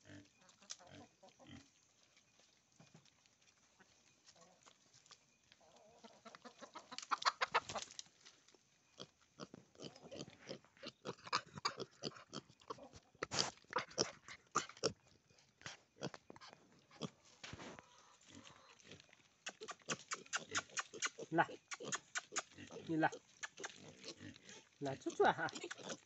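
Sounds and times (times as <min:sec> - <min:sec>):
piglets snuffling: 0:09.4 - 0:26.0
trotters scraping on stones: 0:15.7 - 0:26.0.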